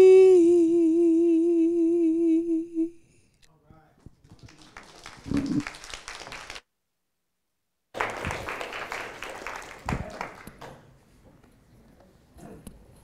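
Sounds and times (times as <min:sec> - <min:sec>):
congregation applauding: 0:04.2 - 0:06.6, 0:08.0 - 0:10.9.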